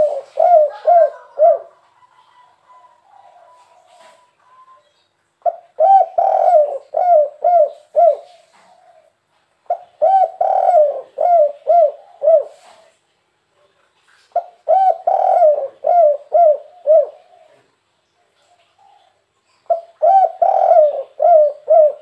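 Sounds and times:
dove cooing: 0.0s - 4.8s, 5.4s - 9.1s, 9.7s - 12.9s, 14.4s - 17.8s, 18.4s - 22.0s.

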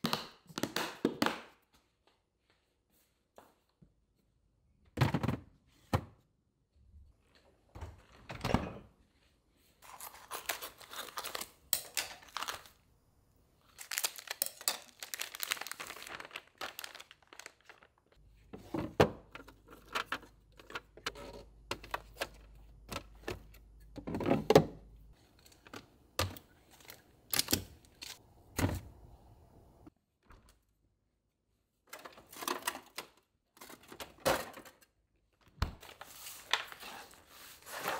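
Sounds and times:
plastic rustling and crinkling: 13.6s - 18.2s
plastic containers clunking: 18.5s - 24.9s.

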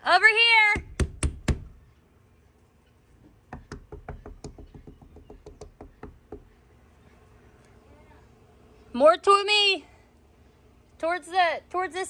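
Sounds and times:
knocking on wooden siding: 0.8s - 1.8s, 3.5s - 6.6s.

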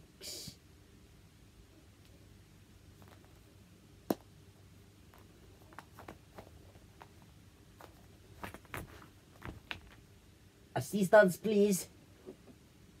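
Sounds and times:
cloth rustling and light taps: 5.0s - 10.1s.

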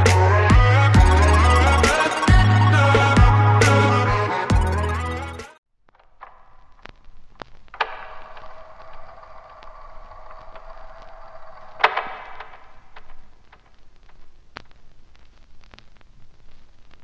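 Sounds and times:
sharp clicks and knocks: 5.9s - 14.8s.

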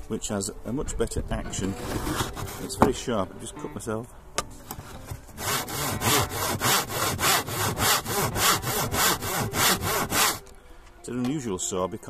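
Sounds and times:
hand saw rasping strokes: 5.0s - 10.5s.

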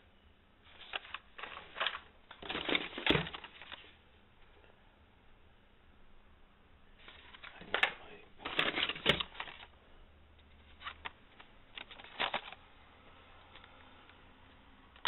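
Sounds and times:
plastic blister packs clacking: 0.7s - 3.8s, 7.0s - 9.7s, 10.7s - 12.6s.

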